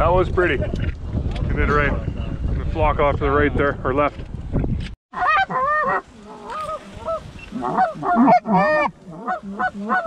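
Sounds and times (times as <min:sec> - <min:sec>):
geese honking and clucking: 0:05.1 - 0:10.0.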